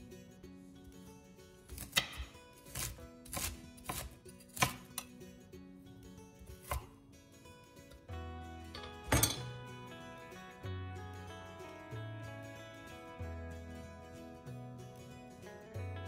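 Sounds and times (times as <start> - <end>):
soft background music: 0.0 - 16.0
knife chopping on wooden board: 1.7 - 5.1, 6.6 - 6.9.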